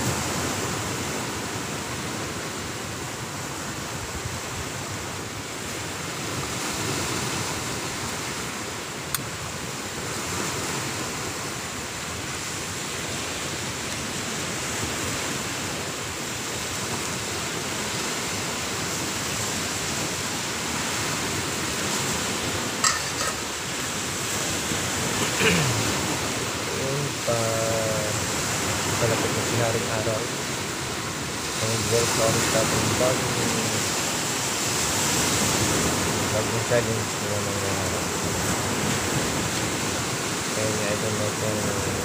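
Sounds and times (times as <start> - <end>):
ocean surf breaking: 0.0 - 42.0
metal pot lid clinks: 22.8 - 23.4.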